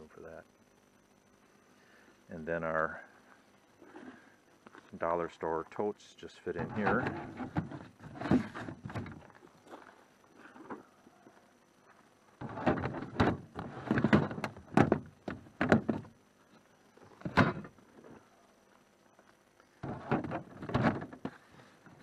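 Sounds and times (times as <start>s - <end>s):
plastic scraping: 6.6s - 9.2s, 12.4s - 16.1s, 19.8s - 22.0s
hollow plastic knocks: 12.6s - 16.1s.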